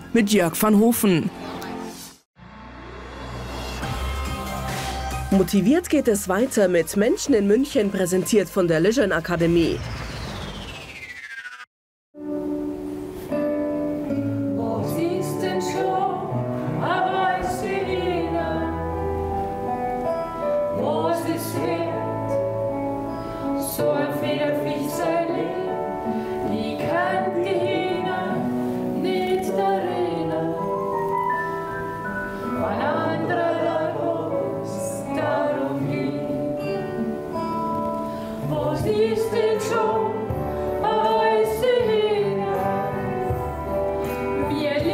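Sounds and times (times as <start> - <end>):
man and woman singing duet: 14.4 - 19.2, 20.7 - 22.4, 23.6 - 31.0, 32.4 - 37.0, 38.4 - 43.5, 44.3 - 44.9.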